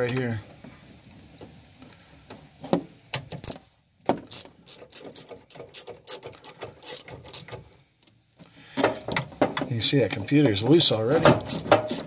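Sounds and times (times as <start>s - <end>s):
socket ratchet clicking: 4.3s - 7.6s, 10.9s - 12.0s.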